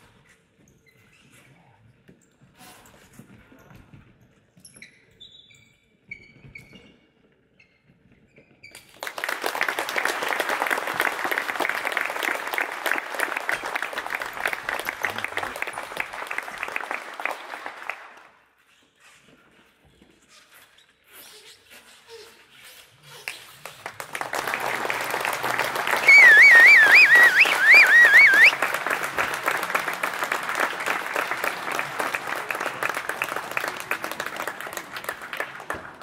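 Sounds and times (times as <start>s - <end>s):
group applauding: 8.9s - 18.4s, 23.6s - 36.0s
faint high squeaks: 18.6s - 23.4s.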